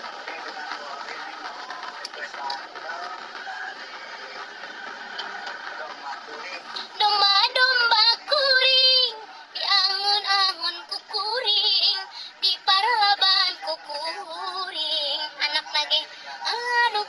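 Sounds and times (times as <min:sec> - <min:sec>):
music: 0:00.0 - 0:17.0
woman singing: 0:06.8 - 0:17.0.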